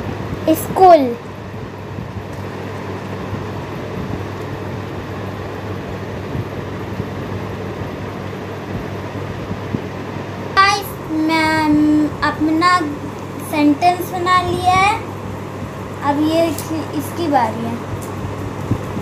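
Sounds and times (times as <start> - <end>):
room hum and hiss: 0.0 - 19.0
person speaking: 10.6 - 15.1, 16.0 - 17.9.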